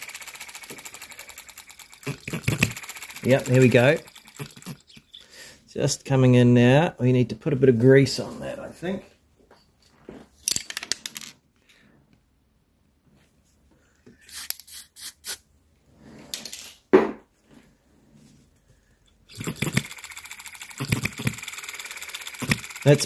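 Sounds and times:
model engine running: 0.0s - 5.0s, 19.3s - 23.0s.

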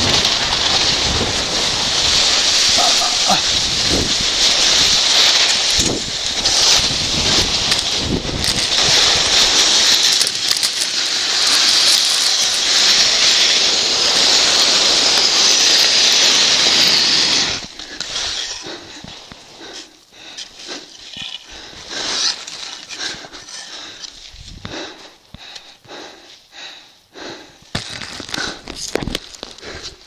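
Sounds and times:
wind on microphone: 0.0s - 9.8s
body sliding down snow: 0.0s - 25.2s.

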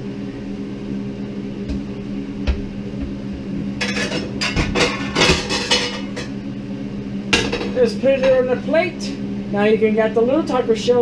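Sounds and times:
steady low hum: 0.0s - 11.0s
dishes and cutlery clattering: 3.8s - 6.3s.

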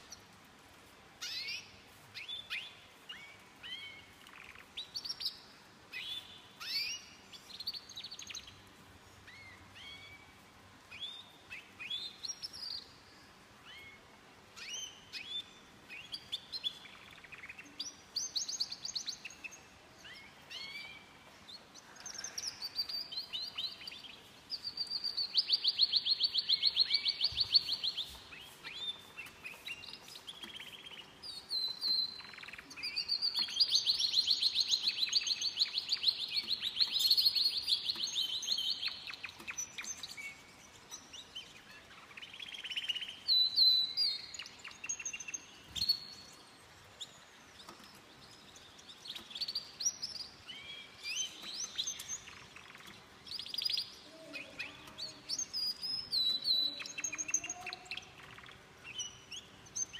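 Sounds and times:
canaries singing and trilling: 0.0s - 12.9s, 13.7s - 59.9s.

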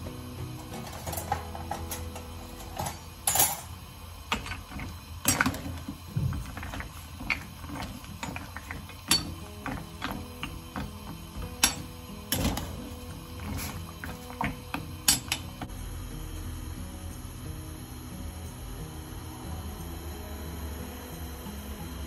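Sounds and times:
cutlery rattling in a drawer: 0.6s - 3.7s.

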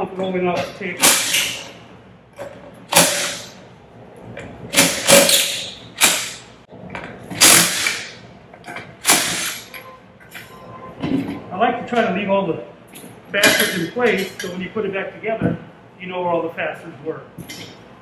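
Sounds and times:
cordless impact wrench bursts: 1.0s - 1.7s, 2.9s - 3.6s, 4.7s - 6.5s, 7.4s - 8.2s, 9.0s - 9.7s.

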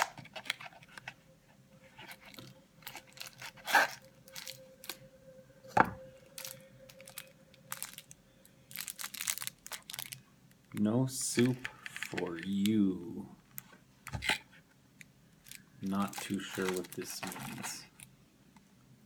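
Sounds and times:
packaging rustling and crinkling: 0.0s - 1.2s, 1.8s - 5.0s, 6.4s - 12.7s, 15.4s - 18.1s
packaging crackles: 2.0s - 5.0s, 6.4s - 12.7s, 15.4s - 18.1s.

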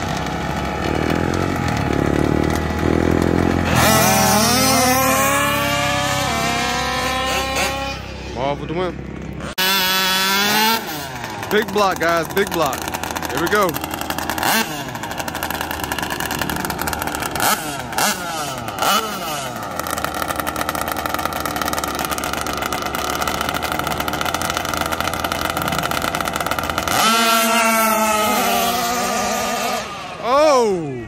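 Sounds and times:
small gasoline engines revving: 0.0s - 31.0s.

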